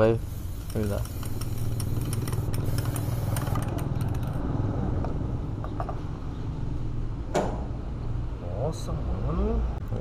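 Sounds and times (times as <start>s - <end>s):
spray paint can hissing: 0.0s - 4.4s.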